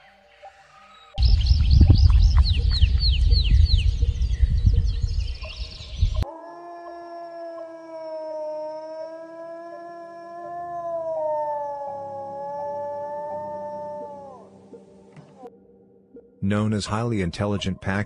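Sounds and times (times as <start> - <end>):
loud low rumbling: 1.2 - 6.2.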